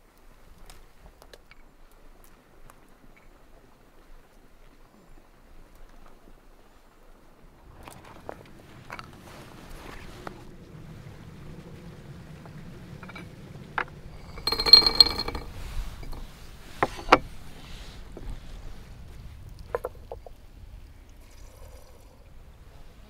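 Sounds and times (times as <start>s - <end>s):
porcelain teapot lid clinking: 14.2s - 17.2s.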